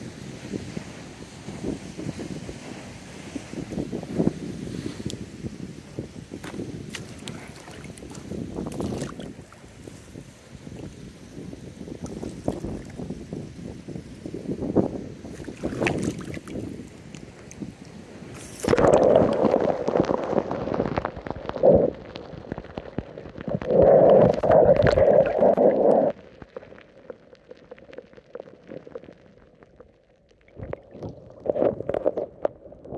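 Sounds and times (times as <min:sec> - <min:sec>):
water gurgling and sloshing: 0:06.4 - 0:11.1, 0:11.8 - 0:13.3, 0:15.2 - 0:32.9.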